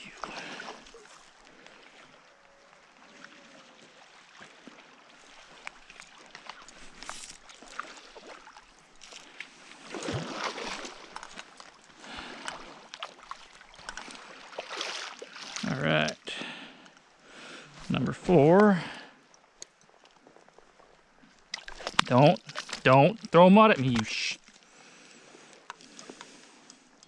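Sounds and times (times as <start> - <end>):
fish thrashing and splashing: 5.3 - 15.7, 19.8 - 24.7.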